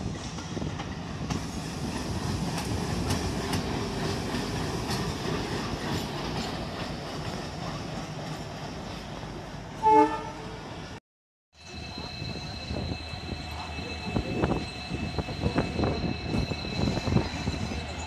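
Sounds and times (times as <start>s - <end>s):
locomotive horn blast: 9.8s - 10.6s.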